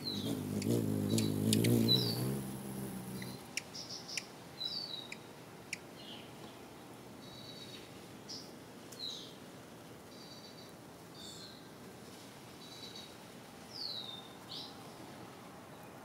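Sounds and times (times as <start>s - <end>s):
birds chirping: 0.0s - 6.3s
low background hiss: 0.0s - 16.0s.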